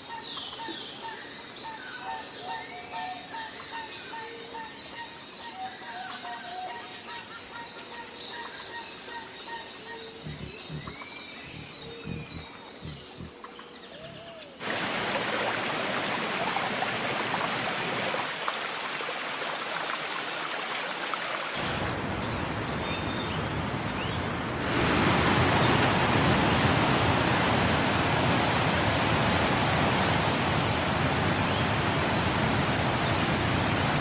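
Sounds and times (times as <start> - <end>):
insect drone: 0.0 - 34.0
bird chirps: 8.4 - 14.6.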